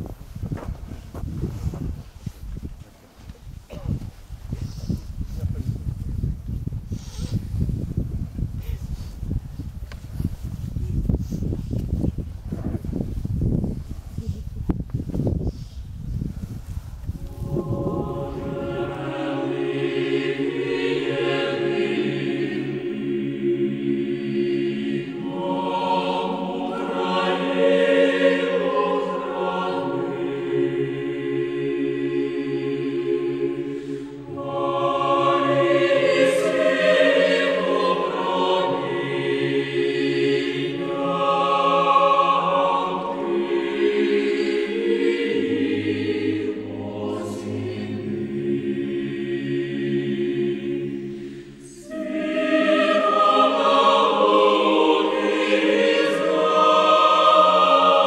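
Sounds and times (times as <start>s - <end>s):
choir singing: 17.1s - 58.0s.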